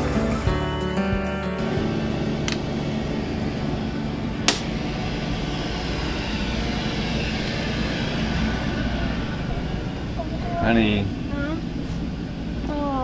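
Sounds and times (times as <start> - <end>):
steady machine hum: 0.1 - 13.0
breaker switch click: 4.5 - 4.7.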